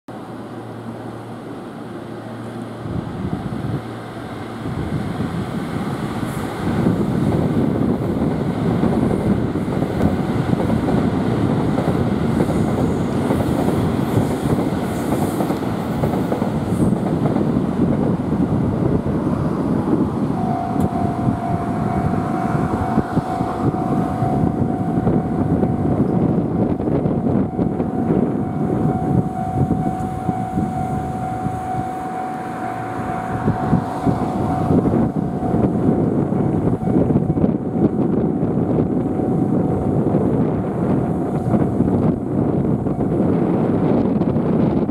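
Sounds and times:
train wheels rumbling on rails: 0.1s - 44.9s
steady high tone: 10.2s - 44.9s.

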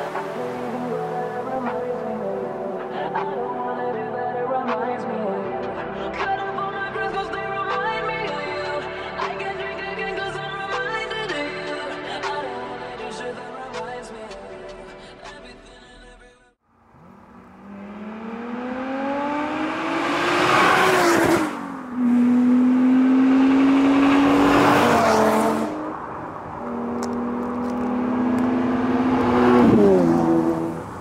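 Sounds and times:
cars accelerating past: 0.0s - 1.8s, 16.8s - 31.0s.

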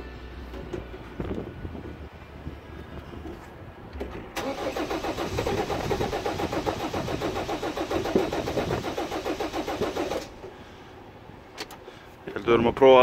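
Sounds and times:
starter cranking diesel engine: 4.4s - 10.6s.

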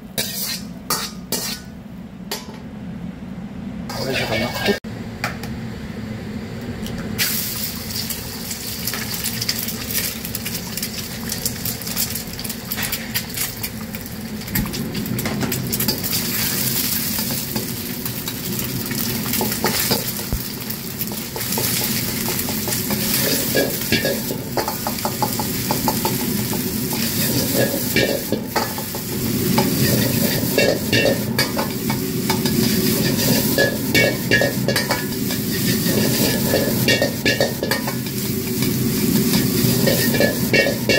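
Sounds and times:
food sizzling in hot oil: 0.0s - 1.7s, 7.2s - 40.9s
metal ladle scraping wok: 0.1s - 1.7s, 21.4s - 40.9s.

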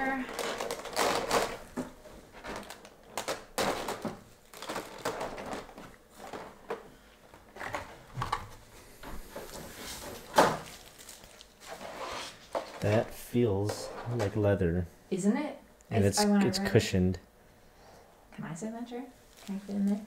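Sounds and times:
plastic packaging crinkling: 0.0s - 6.8s, 9.5s - 13.0s, 19.3s - 20.0s.

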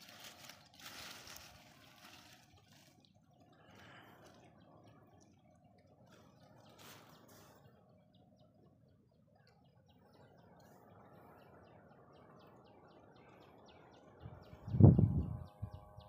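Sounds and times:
wind buffeting microphone: 14.1s - 16.0s.

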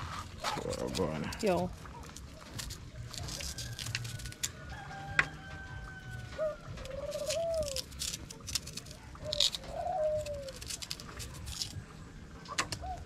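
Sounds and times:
dove cooing: 4.7s - 11.0s, 12.4s - 13.0s.

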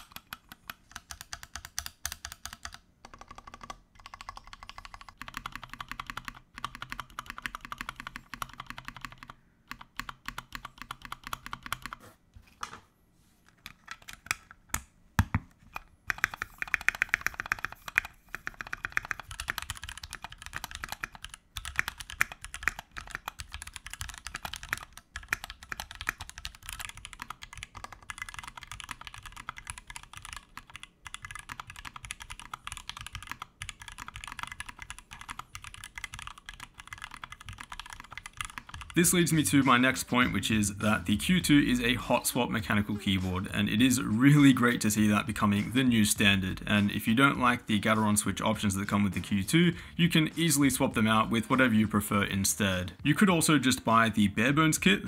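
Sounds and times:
mechanical keyboard typing: 0.0s - 12.0s, 13.6s - 14.8s, 15.7s - 40.5s.

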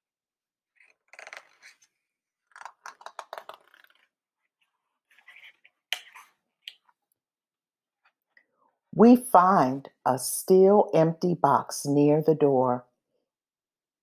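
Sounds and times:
paper page rustling: 0.8s - 6.4s.

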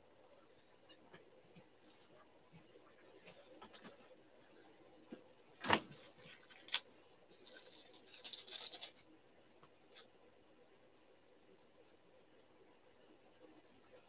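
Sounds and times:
cards rustling and shuffling: 5.6s - 9.0s.

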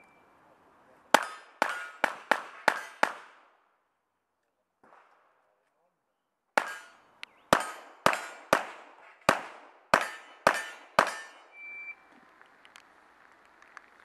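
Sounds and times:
high beep: 0.0s - 0.3s, 11.3s - 12.0s
handgun shots: 6.6s - 11.4s.

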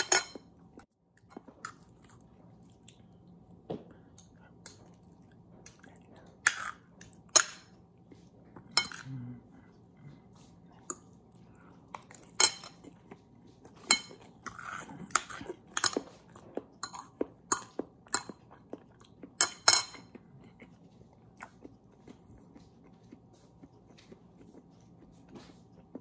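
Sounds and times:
cutlery clinking on plate: 0.0s - 0.5s
chewing and crunching: 0.3s - 26.0s.

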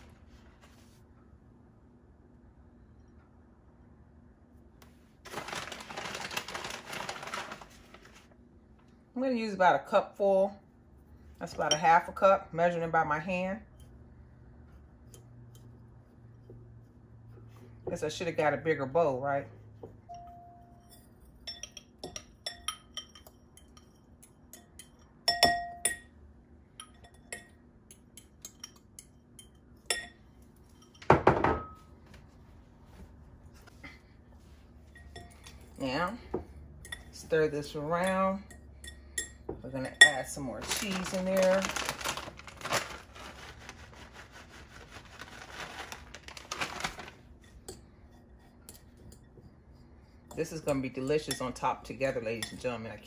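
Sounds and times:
plastic bag crinkling: 5.2s - 8.3s, 40.6s - 47.3s
metal spoon clinking on glass bowl: 20.1s - 26.2s, 26.8s - 31.1s, 36.8s - 37.2s, 52.4s - 52.6s.

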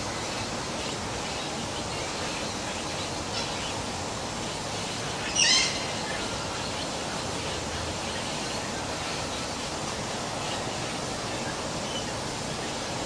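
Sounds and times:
steady background hiss: 0.0s - 13.0s
faint bird calls: 5.1s - 9.6s.

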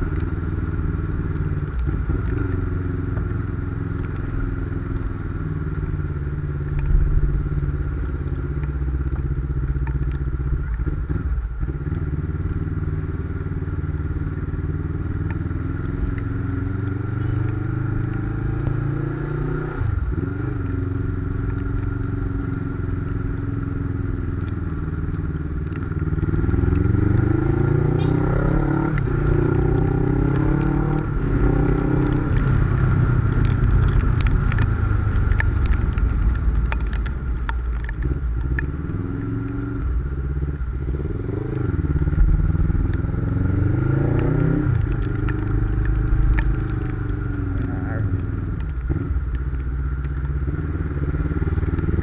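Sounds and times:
motorcycle engine revving: 10.8s - 49.4s, 50.2s - 52.0s.

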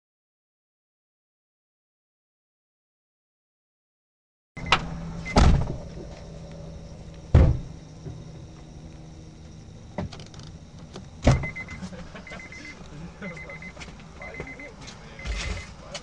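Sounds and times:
steady low hum: 4.6s - 16.0s
heavy thumps: 7.3s - 8.7s
high beeps: 11.3s - 15.7s.

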